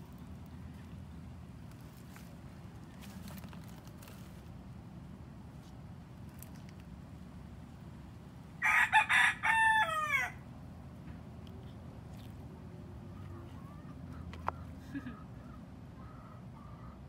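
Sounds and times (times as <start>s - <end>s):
rooster crowing: 8.6s - 10.4s.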